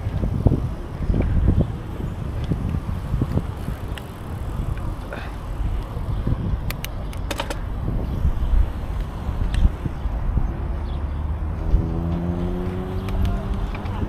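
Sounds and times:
sharp bicycle clicks: 0.0s - 9.9s
wind rumbling on microphone: 0.0s - 14.0s.

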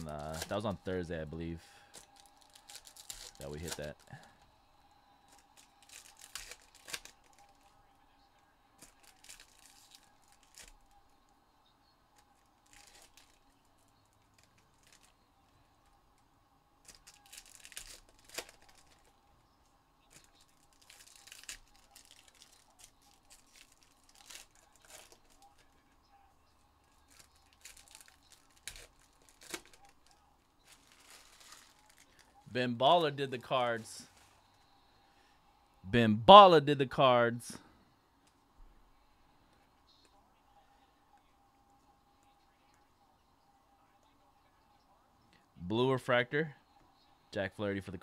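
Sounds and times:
card wrappers tearing and crinkling: 0.0s - 0.8s, 1.9s - 4.2s, 5.3s - 7.7s, 8.8s - 10.9s, 12.2s - 13.5s, 14.2s - 15.2s, 16.8s - 19.1s, 20.1s - 25.9s, 26.8s - 32.4s.

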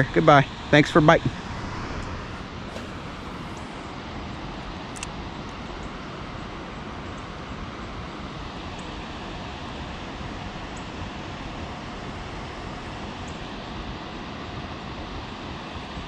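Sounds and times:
steady rushing noise: 0.7s - 4.4s.

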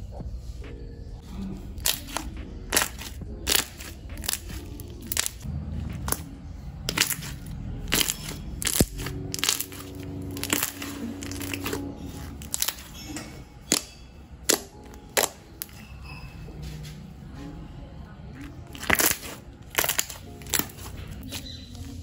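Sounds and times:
slime squishing with sticky pops: 1.8s - 5.4s, 6.9s - 15.8s, 18.7s - 21.5s.

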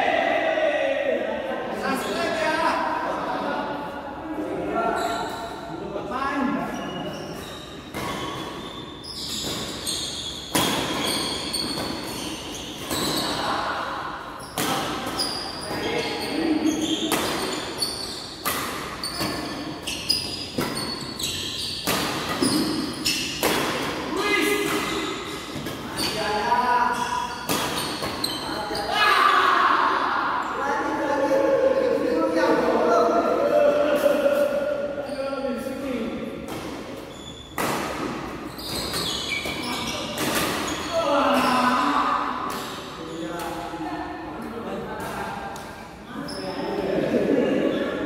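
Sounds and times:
shoes squeaking on court floor: 4.8s - 5.7s, 6.6s - 13.6s, 14.3s - 29.0s, 35.0s - 41.9s, 46.2s - 46.6s
rackets hitting shuttlecocks: 16.9s - 21.0s, 21.8s - 25.9s, 27.4s - 28.4s, 36.4s - 40.9s.

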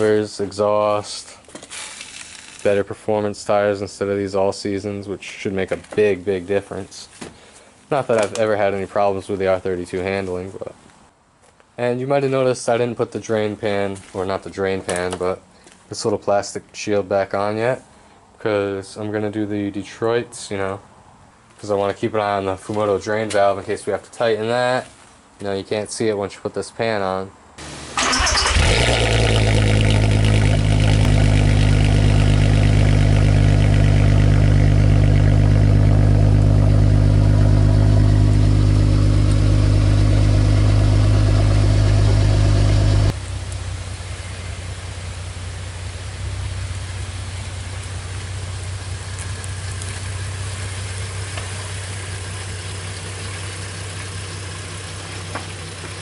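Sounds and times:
car engine idling: 27.6s - 56.0s.

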